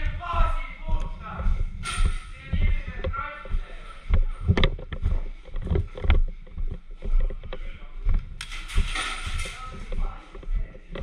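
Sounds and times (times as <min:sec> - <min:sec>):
knocks and rustling of gear: 0:04.1 - 0:11.0.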